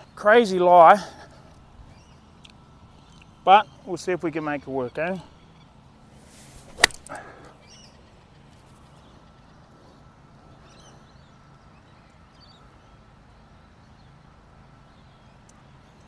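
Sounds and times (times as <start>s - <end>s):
birds chirping: 0.0s - 16.0s
low outdoor rumble: 0.0s - 16.0s.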